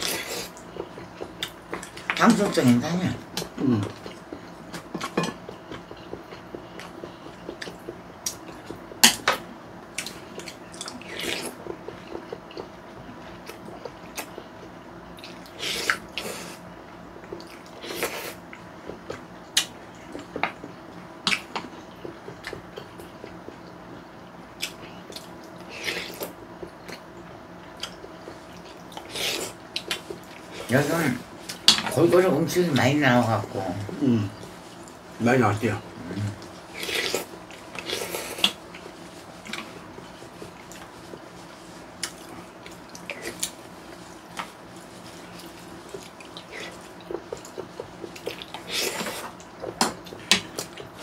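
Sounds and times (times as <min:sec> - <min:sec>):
chewing: 0:03.3 - 0:09.3, 0:09.9 - 0:16.6, 0:17.2 - 0:23.8, 0:24.5 - 0:30.7, 0:36.3 - 0:51.0.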